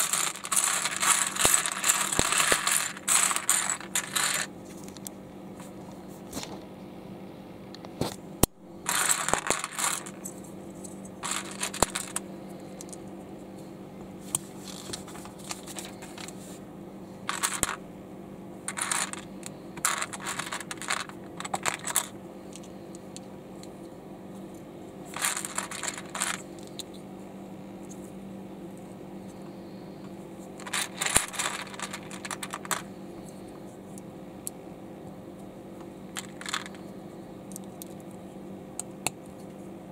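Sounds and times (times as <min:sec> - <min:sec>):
plastic bricks clicking: 0:00.0 - 0:04.5, 0:08.9 - 0:10.2, 0:11.2 - 0:12.2, 0:17.3 - 0:17.8, 0:18.7 - 0:19.2, 0:19.8 - 0:22.1, 0:25.2 - 0:26.4, 0:30.6 - 0:32.9, 0:36.2 - 0:36.8.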